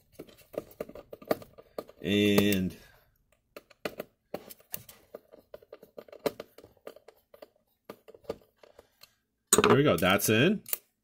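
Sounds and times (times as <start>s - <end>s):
screwdriver clicks and scrapes: 10.6s - 11.0s.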